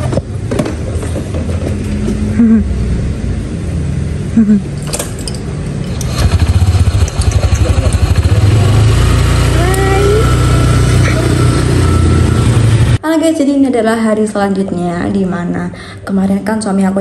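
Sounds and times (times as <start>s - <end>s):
motor scooter engine rumble: 5.9s - 13.0s.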